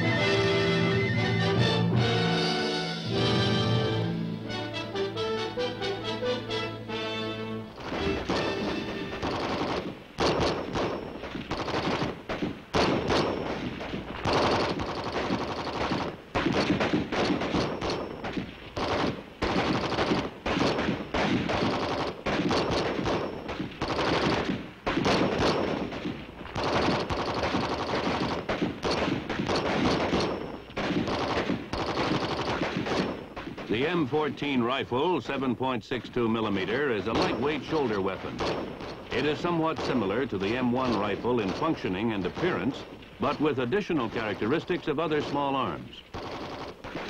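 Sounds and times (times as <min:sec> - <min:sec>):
rifle shots: 0:07.7 - 0:34.3, 0:36.1 - 0:47.0
automatic gunfire bursts: 0:07.8 - 0:34.0, 0:36.7 - 0:47.0.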